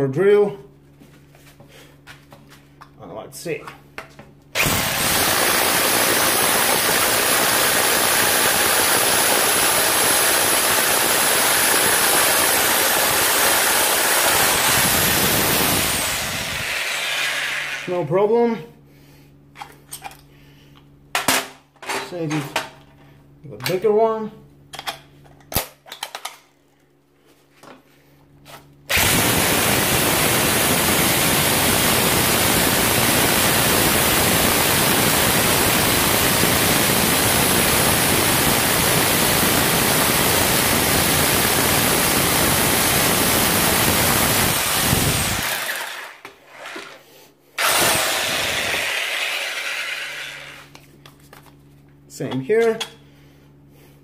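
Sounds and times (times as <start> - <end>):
hammer drill boring into concrete: 4.6 - 17.9, 28.9 - 47.0, 47.6 - 50.8.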